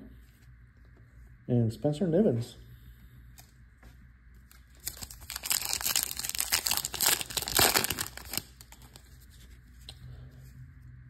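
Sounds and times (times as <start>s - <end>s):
wrapper crinkling being torn: 4.5s - 9.2s.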